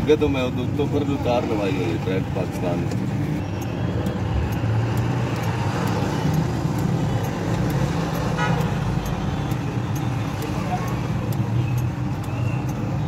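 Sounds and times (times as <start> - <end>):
faint ticks: 2.8 - 13.0.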